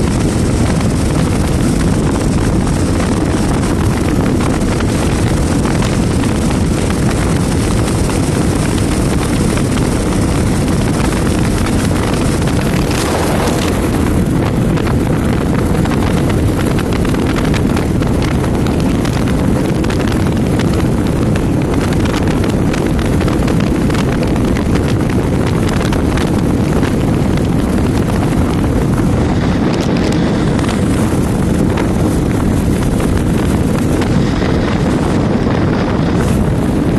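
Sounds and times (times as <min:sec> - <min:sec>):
motorcycle engine running: 0:00.0 - 0:36.9
road noise: 0:00.0 - 0:36.9
wind rumble on microphone: 0:00.0 - 0:36.9.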